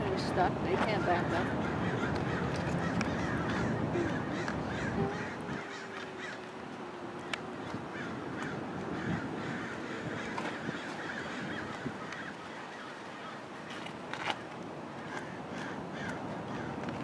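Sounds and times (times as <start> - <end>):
birds calling: 0.0 - 17.0.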